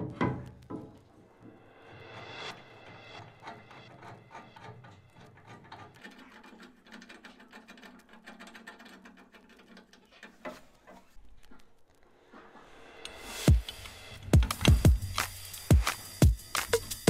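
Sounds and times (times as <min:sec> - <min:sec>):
small clicks and metal rattles: 0:03.0 - 0:12.0.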